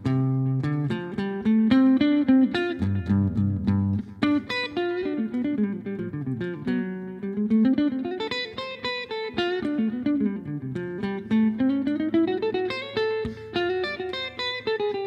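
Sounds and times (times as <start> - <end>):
solo guitar melody: 0.0 - 15.0.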